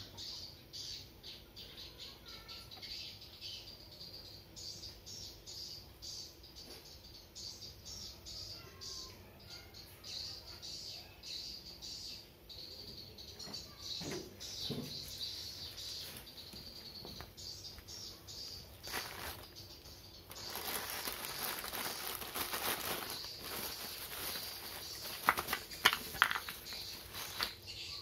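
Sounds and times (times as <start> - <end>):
bubble wrap bag crinkling: 18.6 - 19.6, 20.2 - 27.6.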